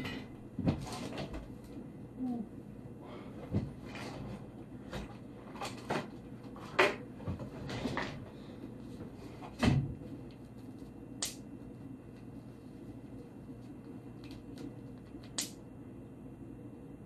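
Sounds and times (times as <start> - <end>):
sharp click: 11.2 - 11.4, 15.2 - 15.6.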